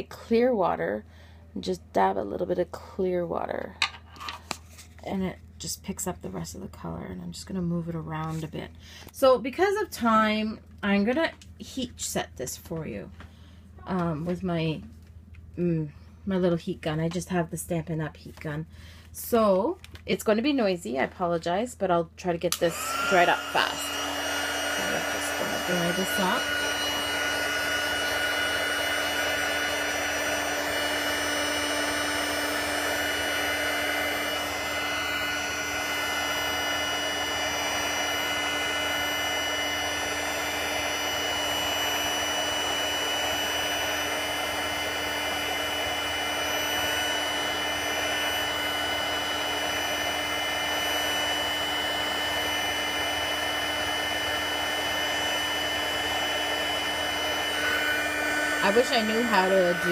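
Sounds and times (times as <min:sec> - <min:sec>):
heat gun blowing: 0:22.5 - 0:59.9.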